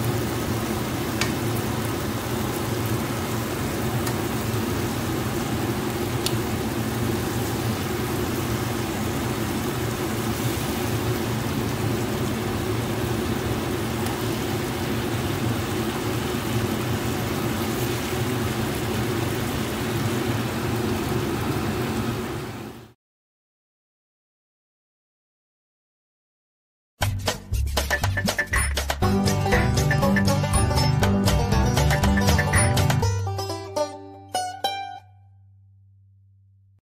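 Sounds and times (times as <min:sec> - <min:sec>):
beans sizzling in frying pan: 0:00.0 - 0:22.6.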